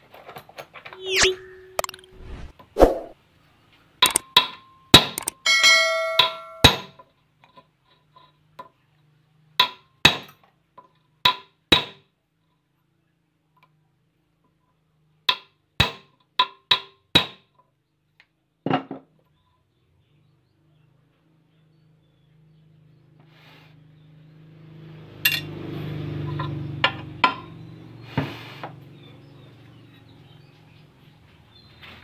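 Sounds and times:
hammer striking steel: 5.0 - 6.9.

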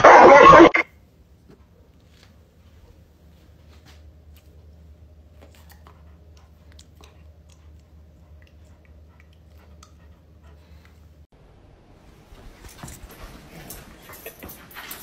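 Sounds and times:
puppy nibbling and licking: 5.3 - 10.0.

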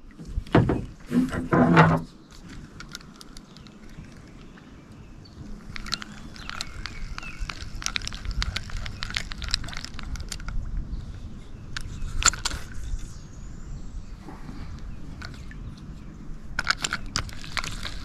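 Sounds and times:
fishing tackle clicks and rattles: 2.3 - 4.0, 5.6 - 10.6, 11.7 - 13.0, 16.6 - 18.0.

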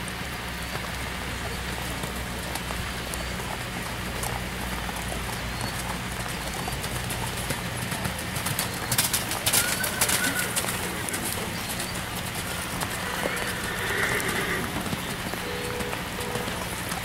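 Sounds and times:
horse hoofbeats on sand: 0.0 - 17.0
steady background hiss: 9.9 - 17.0.

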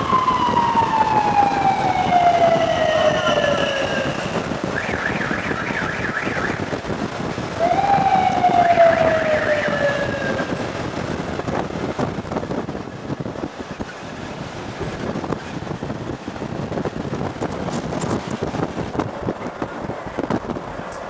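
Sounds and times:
warbling siren-like wail: 0.0 - 6.8, 7.4 - 11.0
long falling wail: 7.6 - 10.5.

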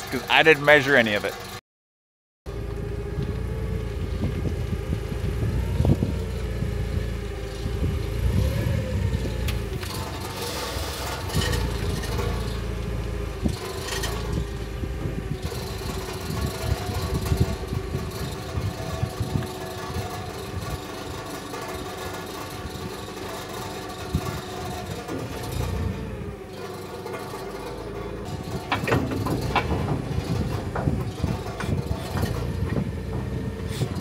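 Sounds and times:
forklift engine running: 0.0 - 1.6, 2.5 - 34.0
sharp metal knocks: 9.3 - 34.0.

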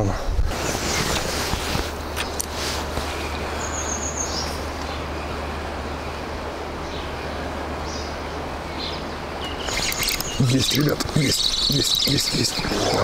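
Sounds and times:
bird chirps: 3.0 - 13.0.

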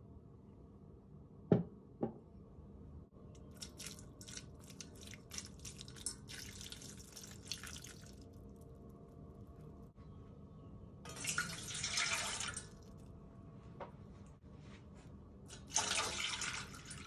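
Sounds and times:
water poured onto dry kibble: 3.5 - 8.7.

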